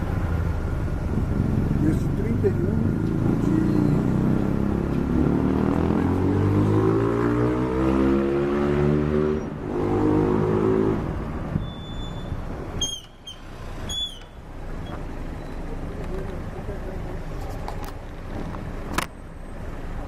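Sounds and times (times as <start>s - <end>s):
car engine accelerating: 0.0s - 11.5s.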